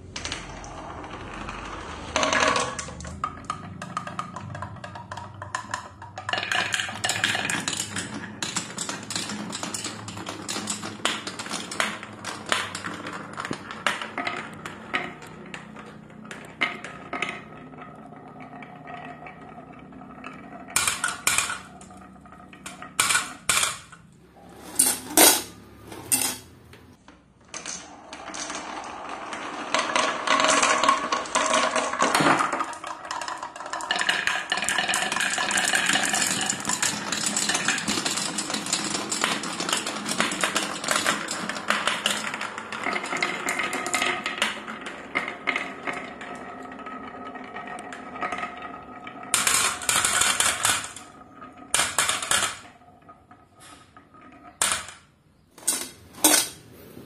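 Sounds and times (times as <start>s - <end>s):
marbles clattering on wooden track: 0.0s - 56.8s
marbles rattling in wooden bowl: 0.1s - 23.8s, 27.5s - 55.0s.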